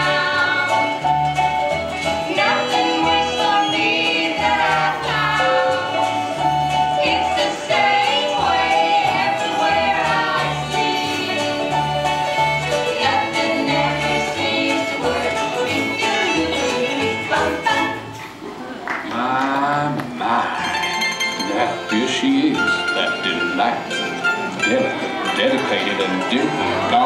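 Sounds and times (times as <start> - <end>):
women singing in harmony: 0.0 - 1.2, 2.0 - 18.3
upbeat country song: 0.0 - 18.0.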